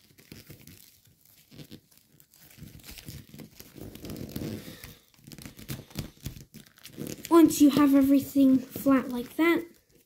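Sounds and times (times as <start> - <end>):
foil paper crinkling: 0.0 - 10.0.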